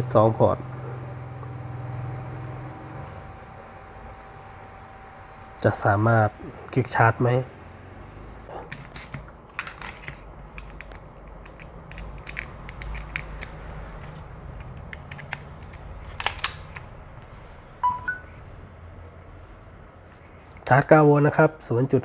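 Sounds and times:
low steady hum: 0.0 - 22.0
two-note rising electronic beep: 17.8 - 18.4.

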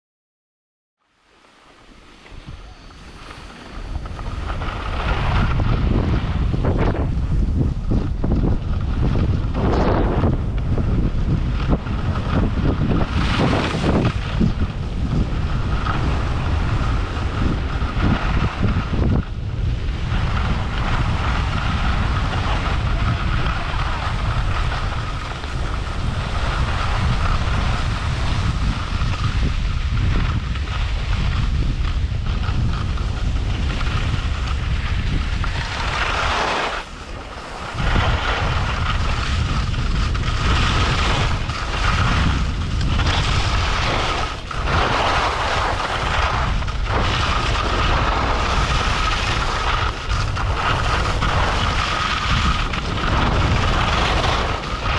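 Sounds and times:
skis sliding on snow: 1.2 - 54.9
wind buffeting microphone: 1.8 - 54.9.

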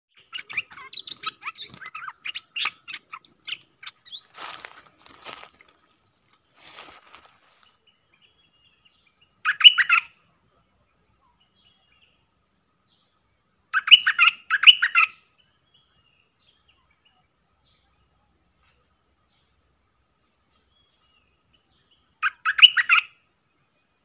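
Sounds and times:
bulbul warbling song: 0.1 - 4.7, 9.4 - 10.1.

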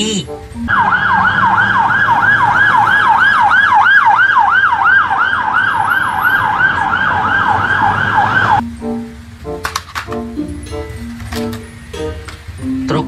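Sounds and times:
police siren yelping: 0.6 - 8.6.

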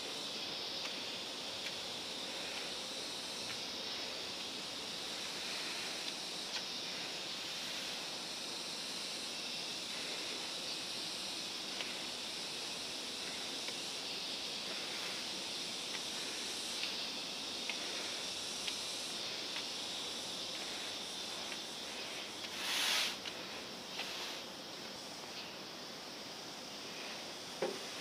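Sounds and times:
outdoor ambient hiss: 0.0 - 28.0.

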